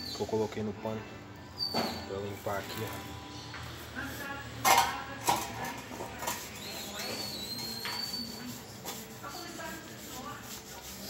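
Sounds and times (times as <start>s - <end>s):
scraping on steel: 5.3s - 11.0s.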